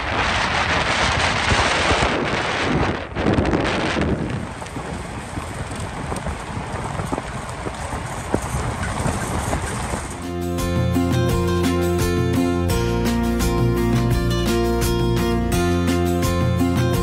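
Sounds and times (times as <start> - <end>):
wind buffeting microphone: 0.0 - 11.4
tyres hissing on gravel road: 4.4 - 12.1.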